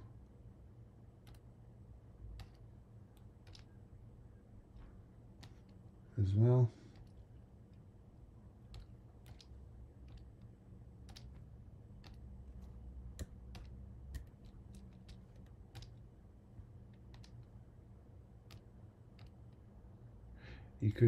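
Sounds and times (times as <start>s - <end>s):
low steady hum: 0.0s - 21.0s
mouse and keyboard clicking: 1.2s - 1.5s, 2.3s - 3.8s, 5.4s - 5.8s, 6.9s - 7.8s, 8.7s - 16.1s, 16.9s - 17.6s, 18.4s - 19.6s.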